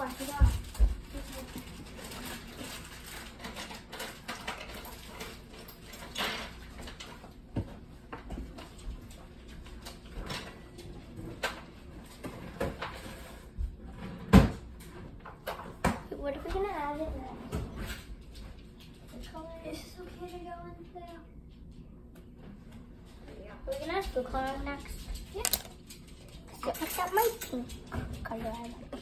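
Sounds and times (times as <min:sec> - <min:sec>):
household objects knocking and clicking: 0:24.9 - 0:26.0.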